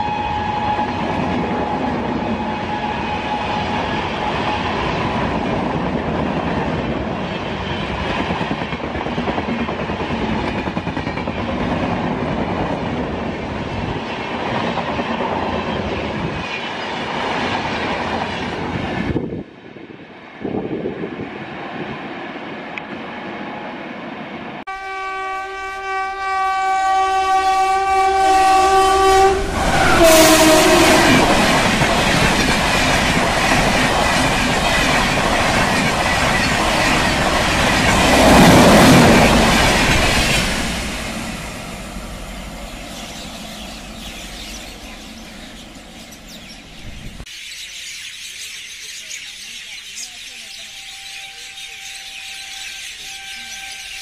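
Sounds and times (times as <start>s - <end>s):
train horn blast: 0.0s - 4.9s, 24.7s - 31.8s, 50.6s - 54.0s
train wheels clattering past: 29.4s - 46.6s.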